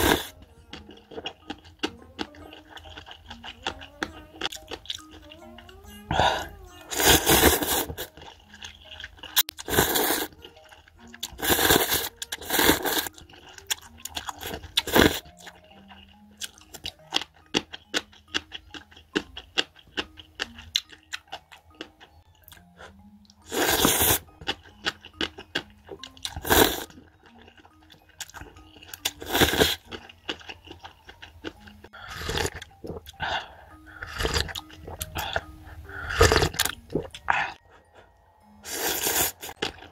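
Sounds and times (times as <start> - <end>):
noodles being slurped: 0.0 - 0.4, 6.1 - 16.6, 23.4 - 24.2
light background music: 0.0 - 39.9.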